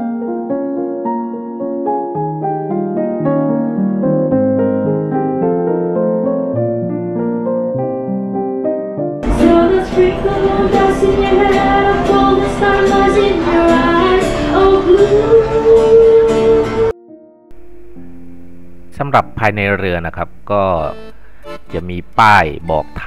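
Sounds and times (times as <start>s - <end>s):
soft piano music: 0.0s - 20.9s
woman singing into a microphone: 9.2s - 16.9s
acoustic guitar: 9.2s - 23.0s.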